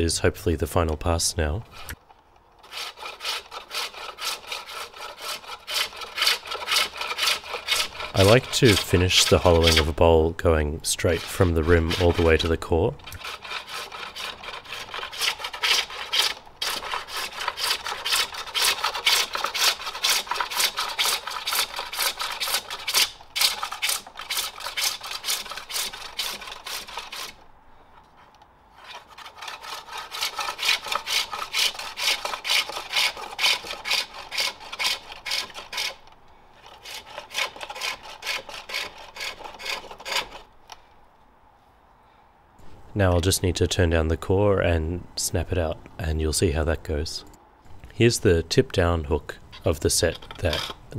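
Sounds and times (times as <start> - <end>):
hook tool scraping wooden bowl: 1.0 - 2.0, 2.6 - 27.4, 28.1 - 40.5, 49.5 - 50.9.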